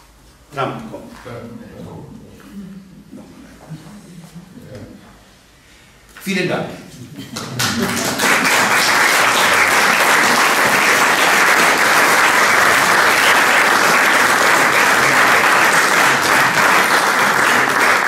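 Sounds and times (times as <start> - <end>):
audience applauding: 7.4 - 18.0.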